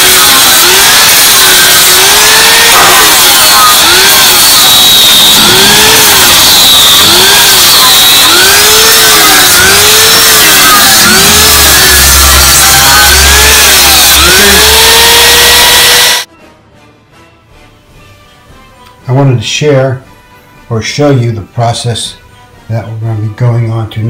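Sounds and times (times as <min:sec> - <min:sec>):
angle grinder cutting wood: 0:00.0 - 0:16.3.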